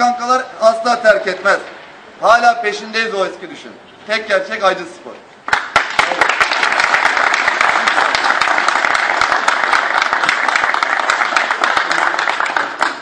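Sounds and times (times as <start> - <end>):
people clapping: 5.4 - 13.0.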